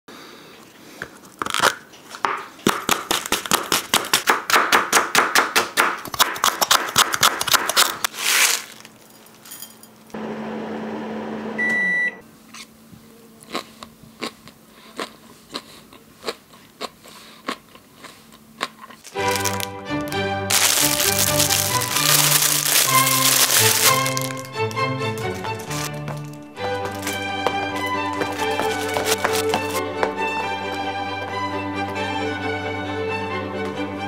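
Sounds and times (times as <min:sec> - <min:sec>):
microwave oven humming: 0:10.1 - 0:12.9
microwave beep: 0:10.9 - 0:12.2.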